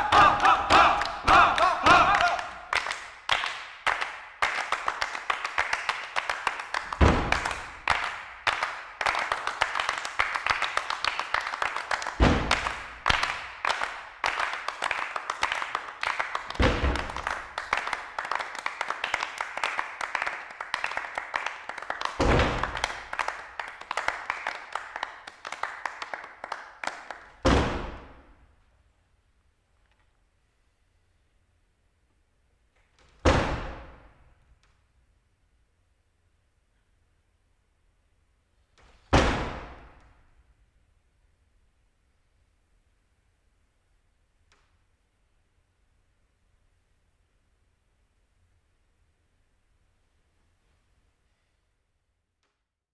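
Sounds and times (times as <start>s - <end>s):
rapid hand claps and taps: 0.0s - 27.4s
heavy thumps: 12.2s - 12.8s.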